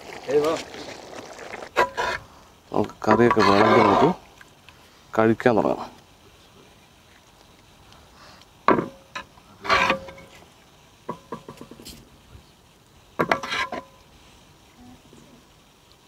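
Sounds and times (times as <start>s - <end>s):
people talking: 0.2s - 0.7s, 14.8s - 15.4s
ladle scraping metal pot: 1.6s - 2.2s, 3.0s - 4.2s, 9.2s - 10.4s, 13.2s - 13.9s.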